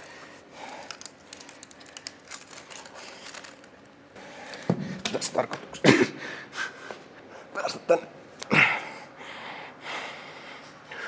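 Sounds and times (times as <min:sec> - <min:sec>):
metal chain clinking: 0:00.7 - 0:03.7.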